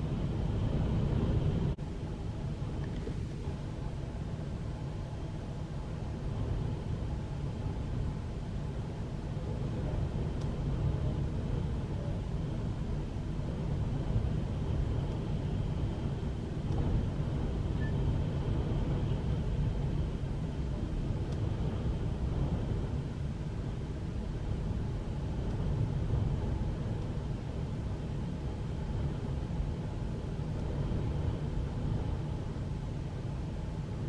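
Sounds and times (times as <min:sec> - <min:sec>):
storm wind blowing in gusts: 0:00.0 - 0:34.0.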